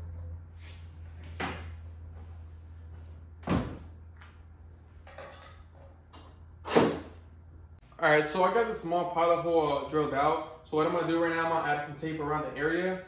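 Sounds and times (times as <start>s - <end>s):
low steady hum: 0.0s - 13.0s
thuds and knocks: 3.4s - 3.9s.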